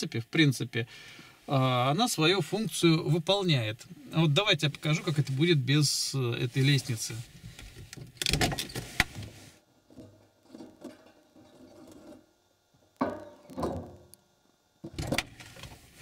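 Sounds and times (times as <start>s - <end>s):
sharp clunk: 13.0s - 14.0s
knocks and rustling: 13.0s - 14.1s.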